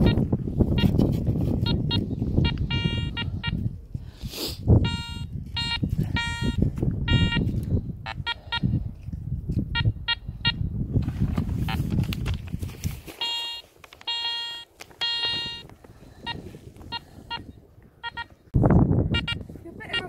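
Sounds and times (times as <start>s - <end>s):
metal detector beeping: 0.0s - 3.7s, 4.8s - 7.5s, 8.1s - 8.7s, 9.7s - 10.7s, 13.1s - 18.4s, 19.1s - 20.0s
wind rumble on microphone: 0.0s - 13.3s, 15.0s - 20.0s.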